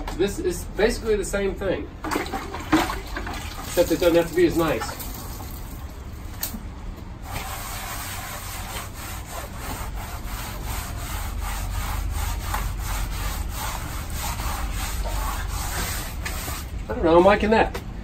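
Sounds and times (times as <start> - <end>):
sponge float scrubbing brick wall: 2.4 - 5.6, 7.2 - 16.8.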